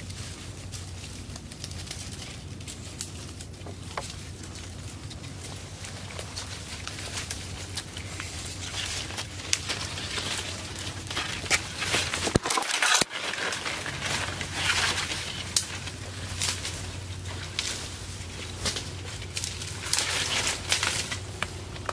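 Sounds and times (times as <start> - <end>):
dry branches rustling: 0.0 - 21.9
footsteps on dry leaves: 0.0 - 21.9.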